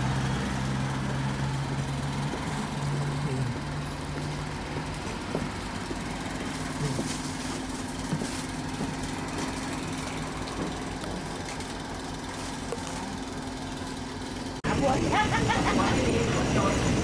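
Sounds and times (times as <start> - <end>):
diesel train engine idling: 0.0 - 17.0.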